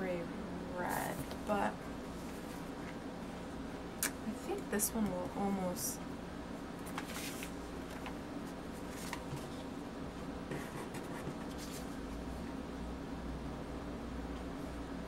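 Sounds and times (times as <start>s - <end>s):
low steady hum: 0.0s - 15.0s
sticker sheets rustling: 6.8s - 9.6s, 10.5s - 12.0s.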